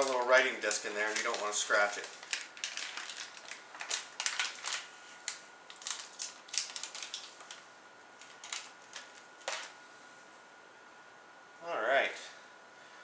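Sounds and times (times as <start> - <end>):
plastic packaging crinkling: 0.0 - 9.8.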